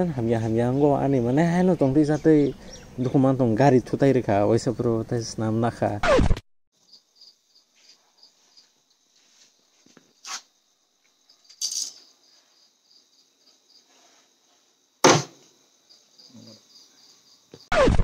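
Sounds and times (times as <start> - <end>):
insects trilling: 6.8 - 17.9
sharp knocks: 15.0 - 15.5.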